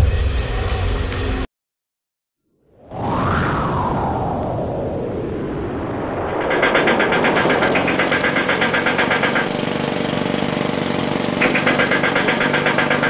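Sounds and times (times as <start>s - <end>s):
steady drone: 4.0s - 13.0s
rapid mechanical pulsing: 6.2s - 13.0s.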